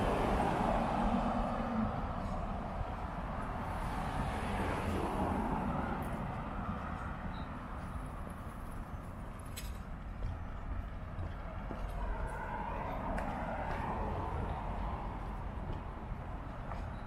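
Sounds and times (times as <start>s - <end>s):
cars passing: 0.0s - 17.0s.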